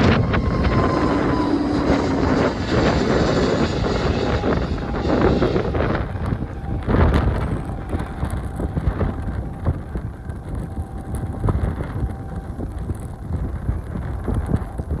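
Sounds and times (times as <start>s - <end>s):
jet engine roar: 0.0s - 15.0s
wind buffeting microphone: 0.0s - 15.0s.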